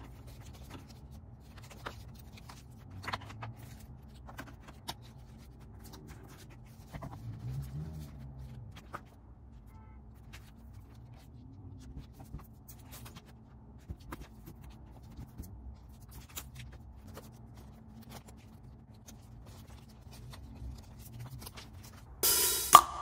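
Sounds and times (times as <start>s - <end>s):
photo prints and pages rustling: 0.0s - 22.2s
low room hum: 0.0s - 23.0s.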